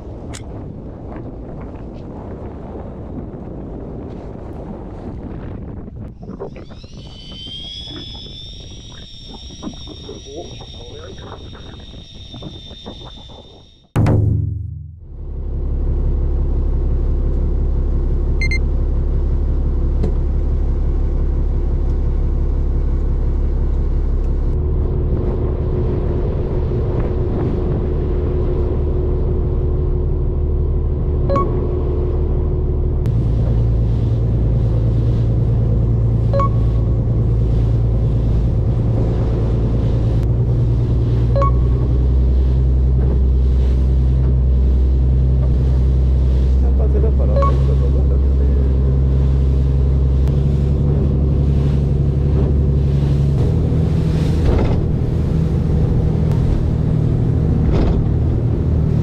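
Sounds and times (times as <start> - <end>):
boat engine droning: 5.6 - 59.0
short beeps: 6.8 - 13.9, 18.4 - 18.6, 31.3 - 31.7, 36.3 - 37.0, 41.3 - 42.1, 47.2 - 48.5.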